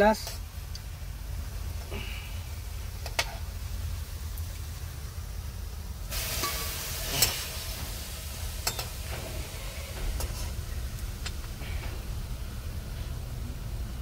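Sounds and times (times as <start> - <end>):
fritters sizzling in hot oil: 0.2 - 12.7
steel ladle clinking: 6.1 - 7.4, 8.6 - 9.2
low rumble: 6.8 - 14.0.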